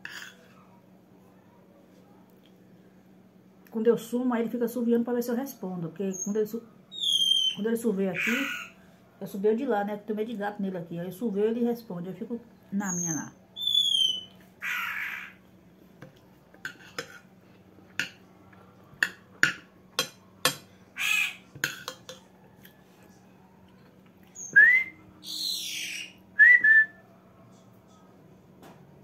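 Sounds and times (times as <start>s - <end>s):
woman and bird whistling: 6.1s - 8.7s, 12.8s - 14.3s, 24.4s - 26.8s
spoon clicking on glass dish: 19.0s - 20.7s, 21.6s - 22.3s.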